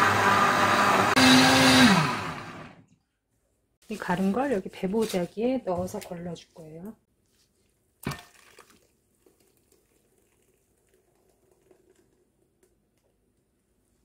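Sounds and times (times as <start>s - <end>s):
thick puree being poured: 8.0s - 13.4s.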